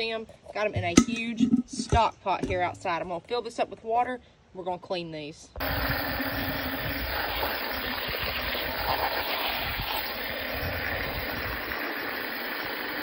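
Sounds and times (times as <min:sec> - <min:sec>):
hose spraying water into a pot: 0:05.6 - 0:13.0.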